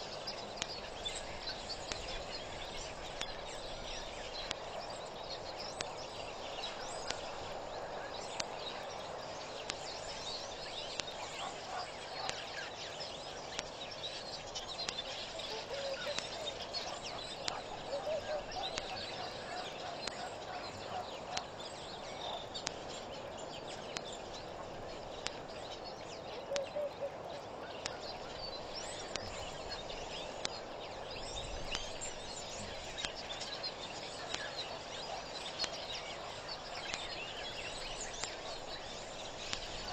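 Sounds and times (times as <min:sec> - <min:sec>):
birds chirping and calling: 0:00.0 - 0:39.9
lower repeated bird calls: 0:00.0 - 0:39.9
sharp clicks: 0:16.1 - 0:16.4.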